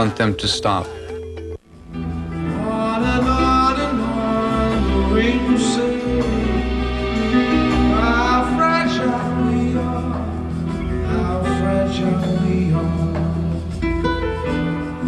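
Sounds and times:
low bass notes: 0.0s - 15.0s
nylon-string guitar: 1.7s - 15.0s
man singing long notes: 2.4s - 13.7s.

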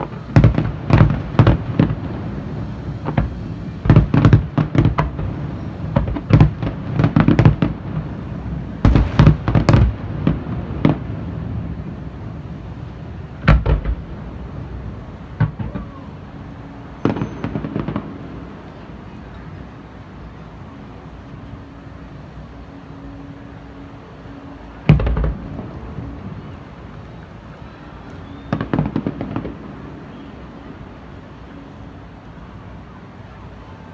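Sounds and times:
fireworks bangs: 0.0s - 12.3s, 13.1s - 19.7s, 24.8s - 31.7s.

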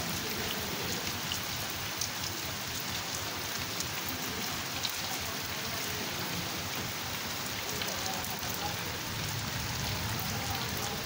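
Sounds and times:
heavy rain on wet ground: 0.0s - 11.0s.

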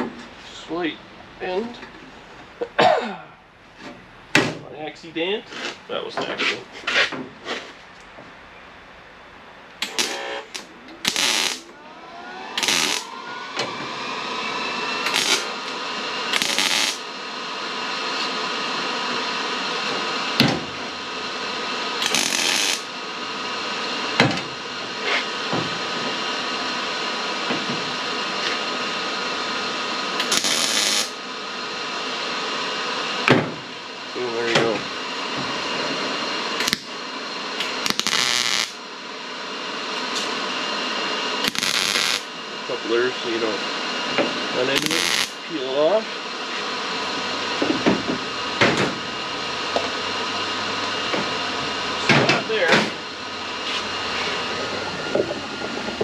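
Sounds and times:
motor whine: 9.8s - 56.0s
short bursts of hiss: 16.3s - 17.0s, 30.2s - 31.1s, 37.6s - 38.8s, 41.4s - 42.2s, 44.8s - 45.4s.

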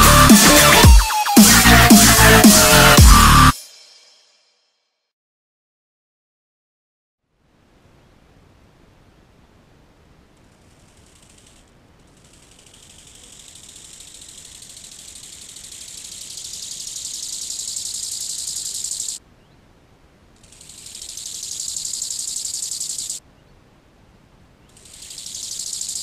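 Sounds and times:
grasshopper stridulating: 10.6s - 19.2s, 20.4s - 23.2s, 24.7s - 26.0s.

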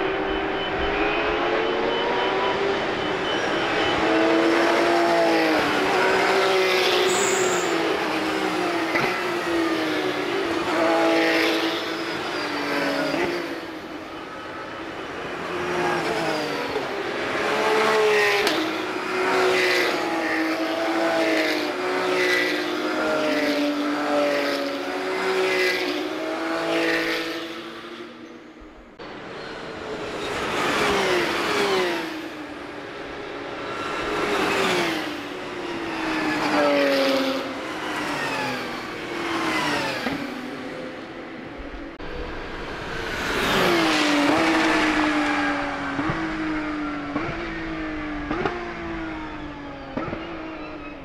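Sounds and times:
race cars passing at full throttle: 0.0s - 51.0s.

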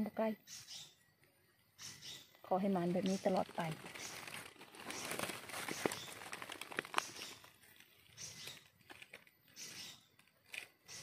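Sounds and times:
dry leaf litter crackling: 2.5s - 11.0s.

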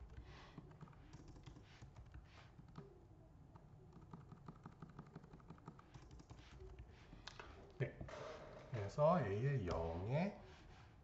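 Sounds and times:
typing on computer keyboard: 0.1s - 2.8s, 3.9s - 6.8s.

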